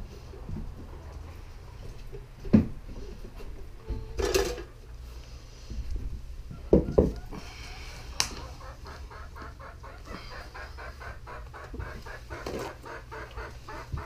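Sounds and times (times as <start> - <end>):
objects clattering on workbench: 4.2 - 4.7.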